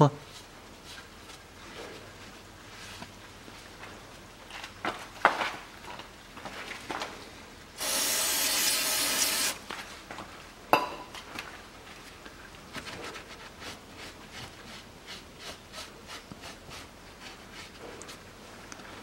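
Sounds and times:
steady hiss: 0:07.8 - 0:09.7.

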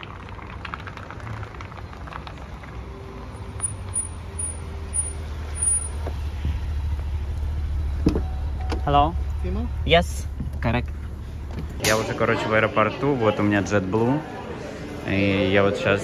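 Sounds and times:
car engine rumbling: 0:00.0 - 0:12.8.

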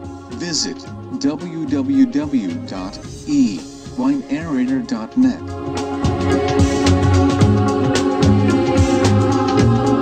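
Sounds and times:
steady beat: 0:01.3 - 0:07.6.

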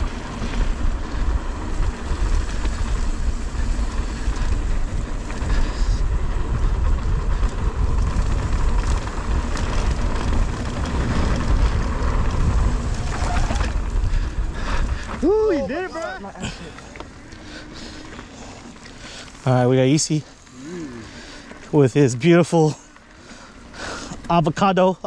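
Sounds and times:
wind buffeting microphone: 0:00.0 - 0:15.9
bike rattling: 0:00.0 - 0:25.0
bike tyres rolling on dirt: 0:00.0 - 0:25.0.

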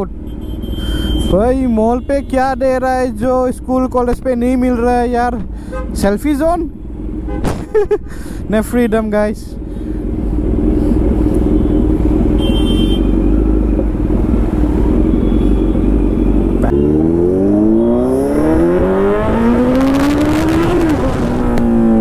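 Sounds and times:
motorcycle engine revving: 0:10.4 - 0:22.0.

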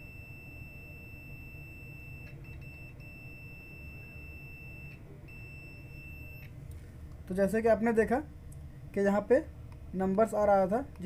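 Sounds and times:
multimeter continuity beep: 0:00.0 - 0:06.6.

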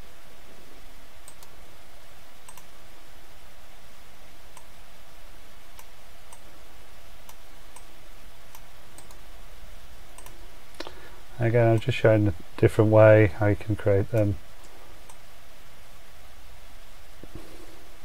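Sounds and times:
faint hiss and low hum: 0:00.0 - 0:18.0
computer mouse clicks: 0:01.2 - 0:01.6, 0:02.5 - 0:02.7, 0:07.2 - 0:07.9, 0:08.5 - 0:09.2, 0:10.2 - 0:10.9.

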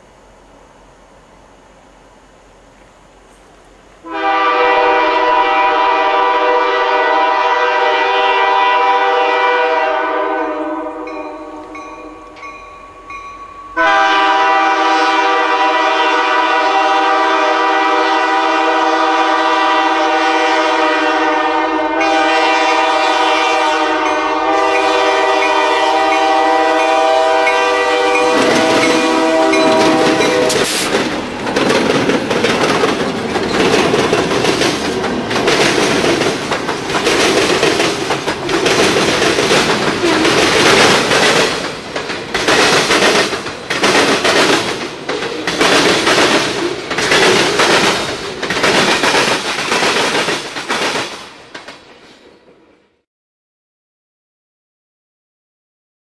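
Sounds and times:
locomotive air horn blasts: 0:04.0 - 0:12.4, 0:13.8 - 0:30.9
train wheels clattering: 0:24.1 - 0:52.6
locomotive engines running: 0:27.6 - 0:50.7.

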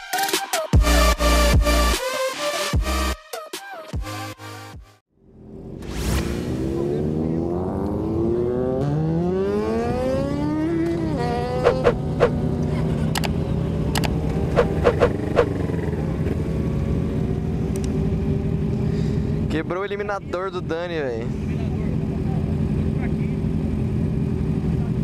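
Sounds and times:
motorcycle engine revving: 0:05.3 - 0:25.0
motorcycle engines idling: 0:12.4 - 0:25.0.

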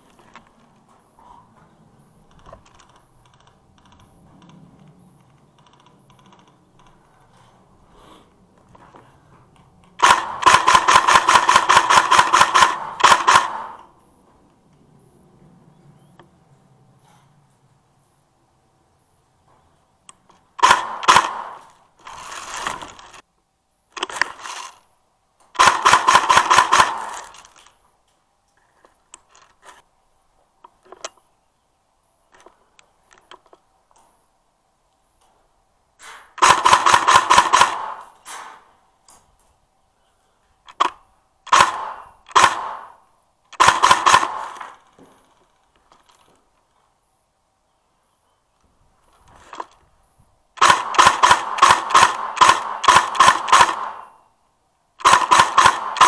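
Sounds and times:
airsoft rifle firing: 0:10.0 - 0:14.0, 0:20.6 - 0:23.2, 0:25.5 - 0:27.6, 0:36.3 - 0:38.7, 0:40.8 - 0:45.0, 0:50.6 - 0:54.3, 0:55.0 - 0:56.0.

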